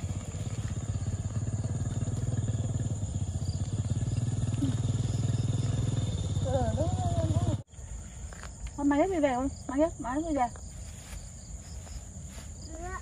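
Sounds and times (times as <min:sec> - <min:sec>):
motorcycle engine running: 0:00.0 - 0:07.7.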